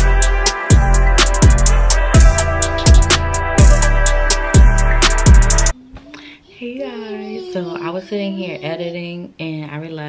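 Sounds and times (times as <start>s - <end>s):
deep kick drums: 0.0s - 5.7s
held chords: 0.0s - 5.9s.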